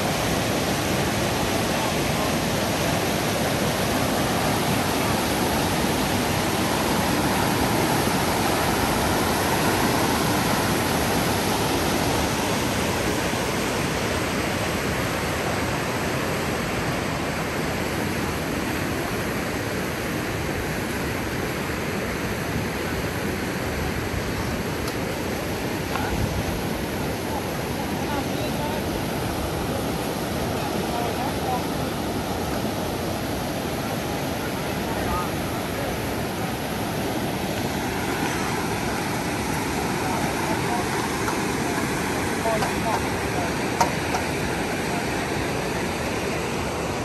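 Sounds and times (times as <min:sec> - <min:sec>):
floodwater rushing: 0:00.0 - 0:47.0.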